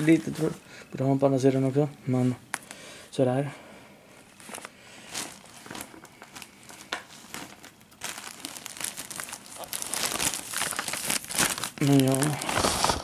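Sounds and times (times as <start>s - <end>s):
plastic bag crinkling: 0.0s - 0.6s, 4.2s - 13.0s
crackles: 4.2s - 13.0s.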